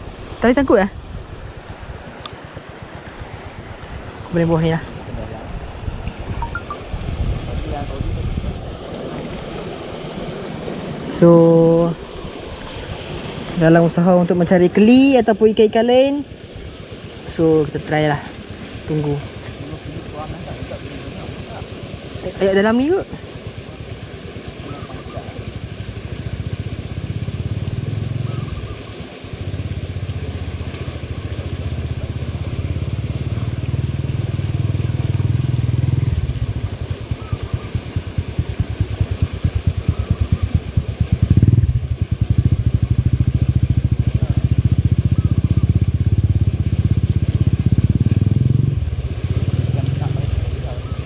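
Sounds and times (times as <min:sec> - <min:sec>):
small engine running: 0:18.5 - 0:51.0.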